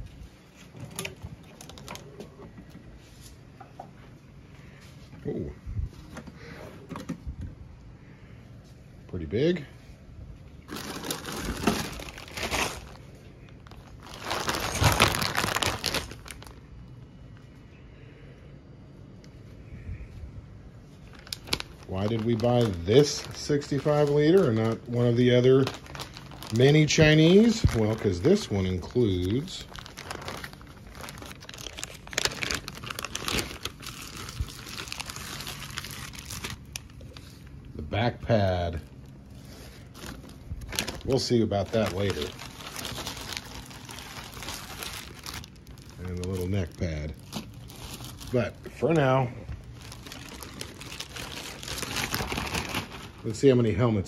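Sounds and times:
plastic bag crinkling: 0:00.0 - 0:02.3, 0:10.6 - 0:17.0, 0:21.0 - 0:53.9.

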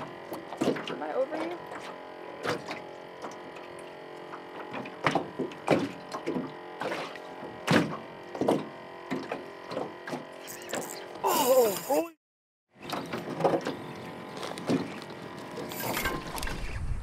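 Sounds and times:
hollow knocks on a boat: 0:04.6 - 0:10.2.

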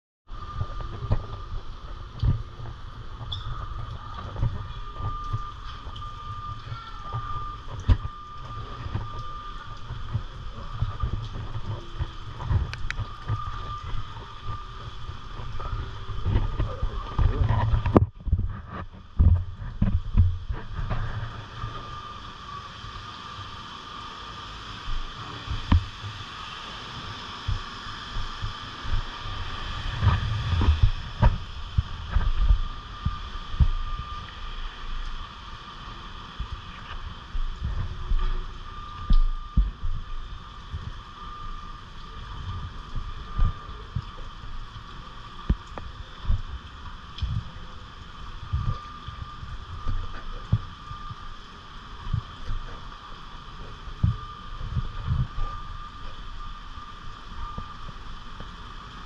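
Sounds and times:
rain falling: 0:00.4 - 0:59.0
faint high tone: 0:03.3 - 0:09.8
wind buffeting microphone: 0:27.5 - 0:35.2.

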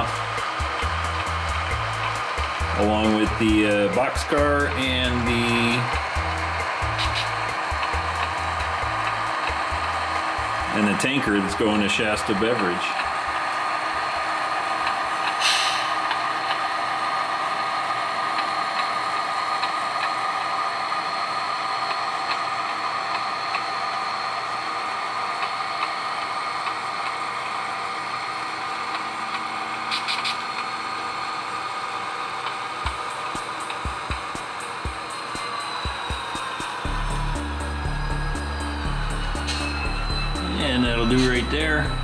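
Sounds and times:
model diesel engine hum: 0:00.0 - 0:42.0
short air hisses: 0:06.9 - 0:07.4, 0:15.4 - 0:16.0.

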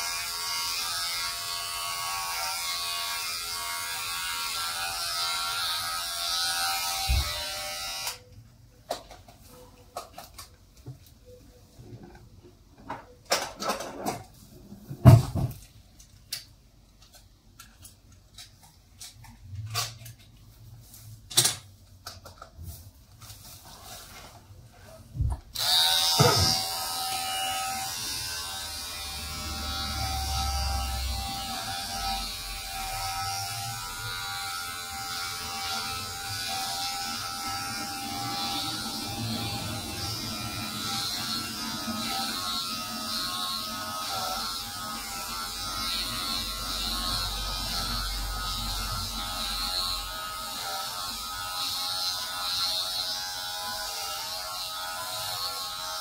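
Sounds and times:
electric shaver buzzing: 0:00.0 - 0:08.2, 0:25.5 - 0:56.0.

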